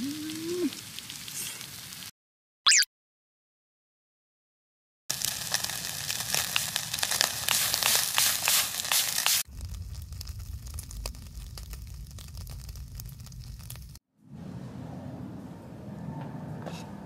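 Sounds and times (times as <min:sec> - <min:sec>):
charcoal grill crackling and sizzling: 0:00.0 - 0:02.1, 0:05.1 - 0:14.0
low rumble: 0:09.5 - 0:15.3.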